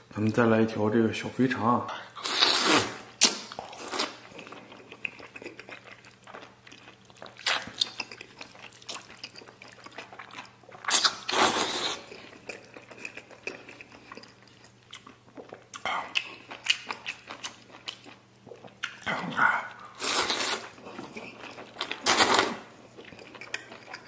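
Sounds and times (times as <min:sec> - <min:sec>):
person slurping noodles: 0:02.2 - 0:04.2, 0:10.9 - 0:12.2, 0:19.2 - 0:20.8
chewing: 0:03.2 - 0:24.0.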